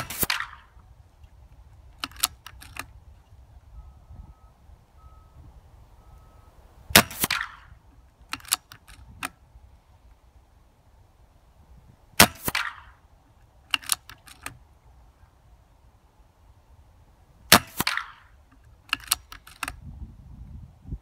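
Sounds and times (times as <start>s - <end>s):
air rifle shots: 0.0s - 0.9s, 1.9s - 3.0s, 6.9s - 9.4s, 12.1s - 13.1s, 13.7s - 14.6s, 17.5s - 19.8s
rifle action clicking: 0.0s - 3.0s, 7.0s - 9.4s, 13.7s - 14.6s, 17.5s - 19.8s.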